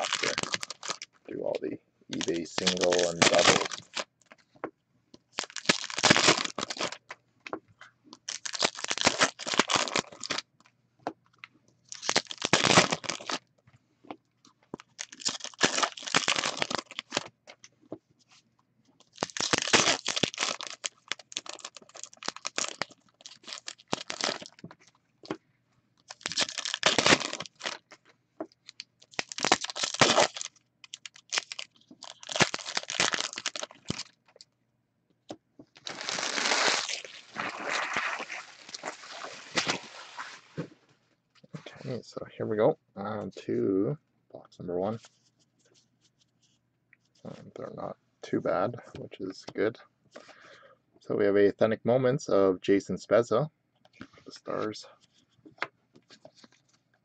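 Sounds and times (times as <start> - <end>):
card packaging tearing and crinkling: 0.0 - 1.1, 2.1 - 4.1, 5.4 - 7.0, 8.2 - 10.4, 11.9 - 13.4, 15.0 - 17.3, 19.0 - 24.6, 26.1 - 28.0, 28.7 - 34.2, 35.8 - 40.7.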